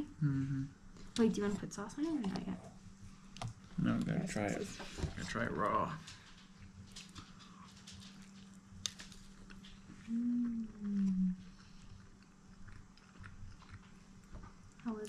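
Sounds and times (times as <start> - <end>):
man humming mmm: 0.0 - 0.8, 10.1 - 11.4
chewing: 6.0 - 15.0.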